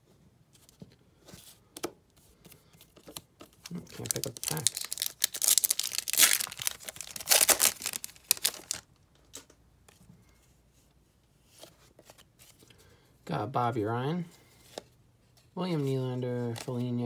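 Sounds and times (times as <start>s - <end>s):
foil wrapper tearing and crinkling: 3.7s - 8.9s.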